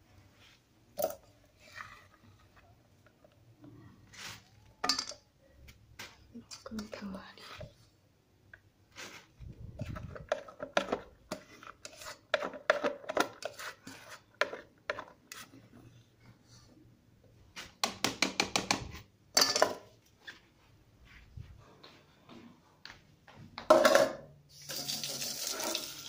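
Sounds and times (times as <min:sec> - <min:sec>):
pot clattering: 0:04.8 - 0:05.2
hand stirring rice in metal pot: 0:08.9 - 0:15.7.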